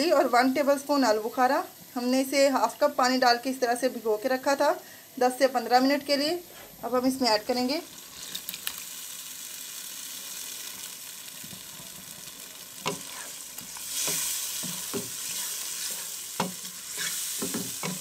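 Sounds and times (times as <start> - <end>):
chicken sizzling in a pan: 5.8 - 18.0
spatula stirring: 11.4 - 18.0.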